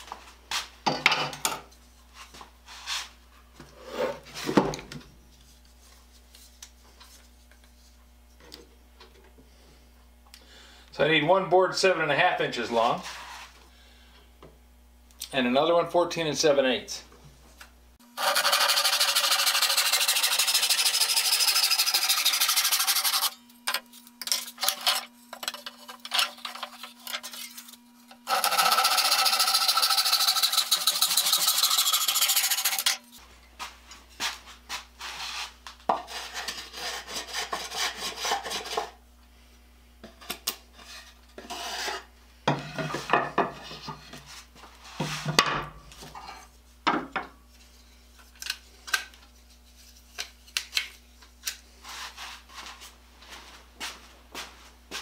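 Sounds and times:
hand saw cutting wood: 18.2s - 23.4s, 24.6s - 33.0s, 36.0s - 39.0s
wood and tools clattering: 23.1s - 27.8s.

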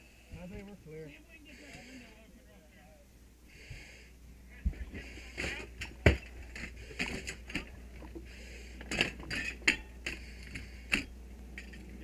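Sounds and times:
breathing through a mask: 1.4s - 2.3s, 3.5s - 4.2s, 8.2s - 9.1s, 10.0s - 11.1s.

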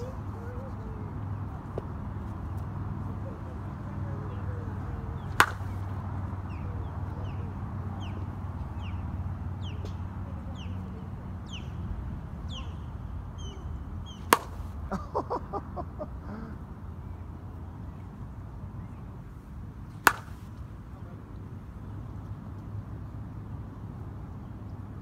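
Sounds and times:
bat hitting softball: 5.3s - 5.9s, 14.1s - 14.8s, 20.0s - 20.6s
bird chirping: 10.5s - 11.8s, 12.4s - 14.4s.

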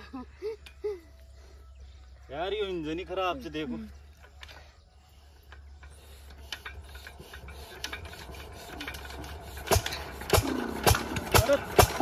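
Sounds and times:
diesel engine being hand-cranked: 3.8s - 12.0s.

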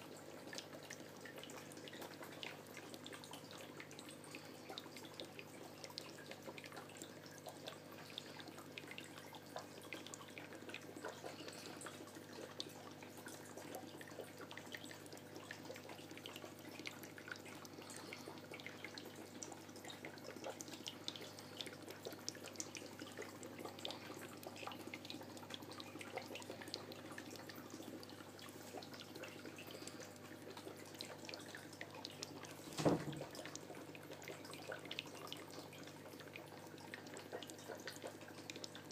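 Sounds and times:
aquarium water trickling: 0.0s - 38.9s
knock: 32.8s - 33.2s.

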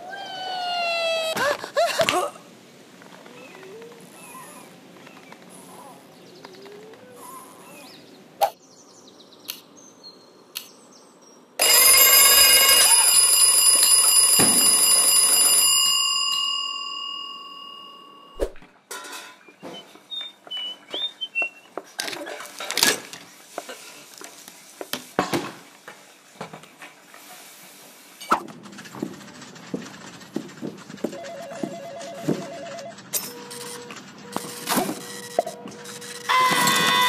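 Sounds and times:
alarm clock bells ringing: 11.6s - 18.4s, 31.2s - 35.4s
short squeaks: 32.8s - 37.0s.

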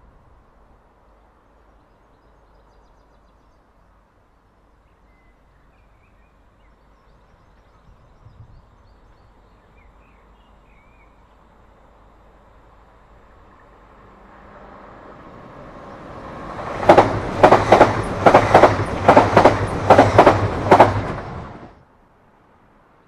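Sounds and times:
approaching electric train: 0.0s - 22.5s
small birds chirping: 4.4s - 11.5s.

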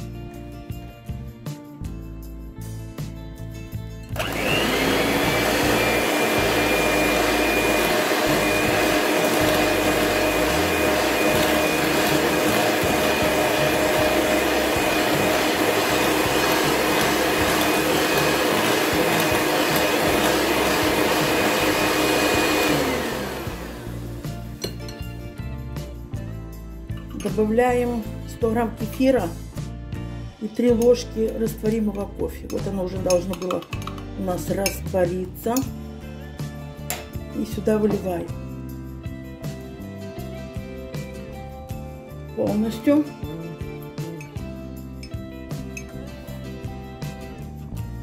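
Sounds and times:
electric hand mixer whine: 4.2s - 24.8s.

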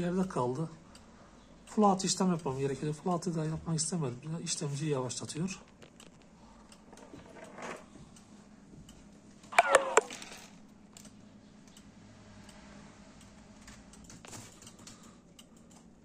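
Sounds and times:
faint steady hum: 0.0s - 16.0s
sharp clicks: 8.9s - 10.2s
short falling squeak: 9.5s - 10.3s.

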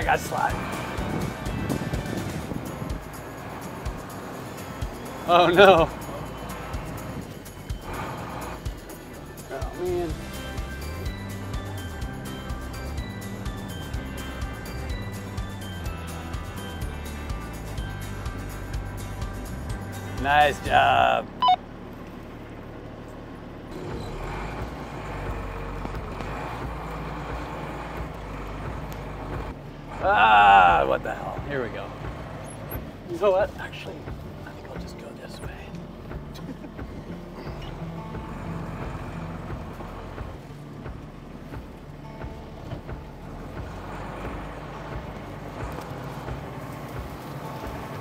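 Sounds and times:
vehicle engine running: 0.0s - 48.0s
knocks and rattles over bumps: 22.0s - 48.0s.

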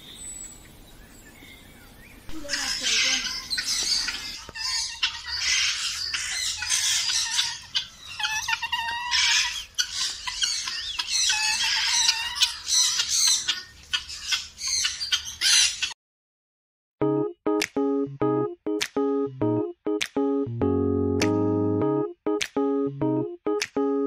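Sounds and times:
birds squawking and calling: 0.0s - 16.0s.

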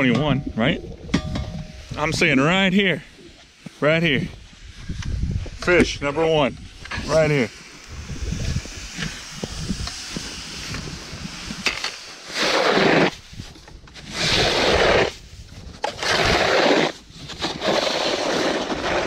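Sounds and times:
snow crunching: 6.4s - 19.0s
snow shovel scraping on ice: 8.4s - 19.0s.

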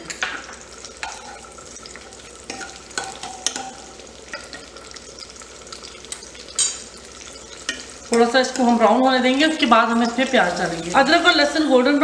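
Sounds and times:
garlic sizzling in hot ghee: 0.0s - 12.0s
metal spatula scraping a pan: 6.5s - 9.0s.

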